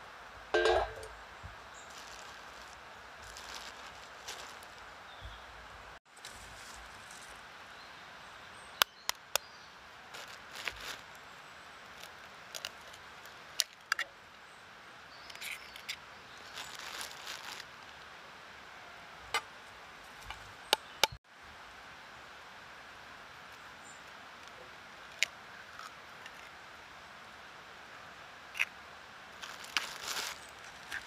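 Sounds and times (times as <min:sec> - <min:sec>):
branches and leaves rustling: 0:00.0 - 0:21.2, 0:28.0 - 0:31.0.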